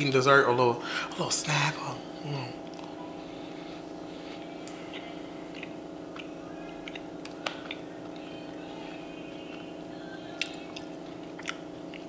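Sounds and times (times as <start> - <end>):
low hum: 0.0 - 12.0
person chewing a cookie: 3.7 - 8.5, 10.3 - 12.0.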